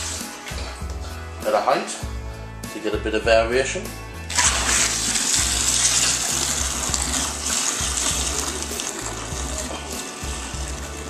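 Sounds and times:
water splashing into bucket: 4.3s - 11.0s.

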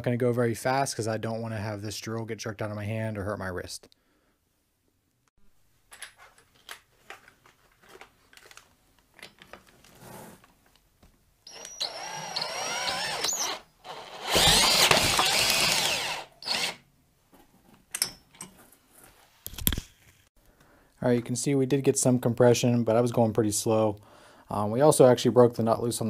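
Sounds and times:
cordless drill whining: 11.5s - 16.8s.

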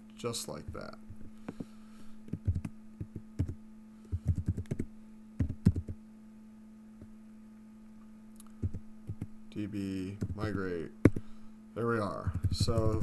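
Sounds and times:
low electrical hum: 0.0s - 13.0s
typing on computer keyboard: 2.4s - 3.6s, 4.2s - 4.8s, 5.4s - 6.0s, 12.4s - 13.0s.

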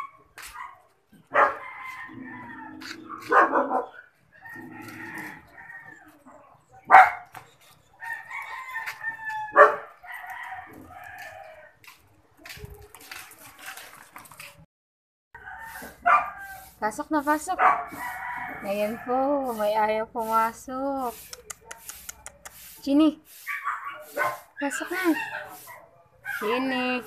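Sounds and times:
roosters crowing: 1.3s - 6.6s, 7.9s - 11.9s, 15.4s - 16.8s, 17.6s - 19.8s.

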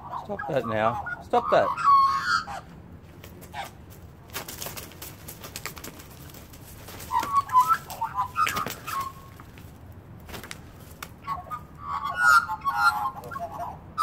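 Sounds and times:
magpie calls: 0.0s - 2.7s, 3.5s - 3.8s, 6.9s - 9.4s, 11.2s - 14.0s
wing beats and scuffling: 2.6s - 11.9s.

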